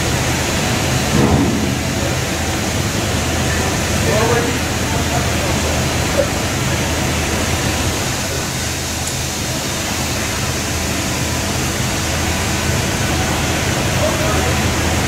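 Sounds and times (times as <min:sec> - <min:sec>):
forklift engine hum: 0:00.0 - 0:08.7
shop noise hiss: 0:00.0 - 0:15.0.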